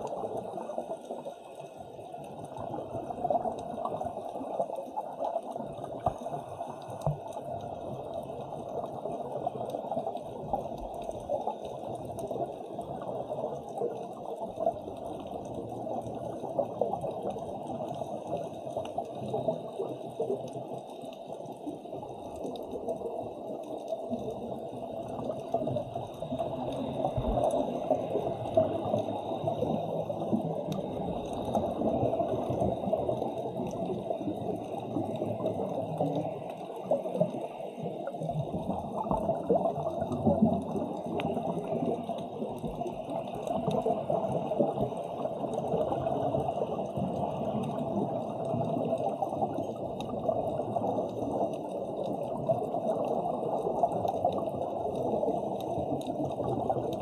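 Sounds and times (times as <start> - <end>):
underwater water noise: 0.0 - 57.0.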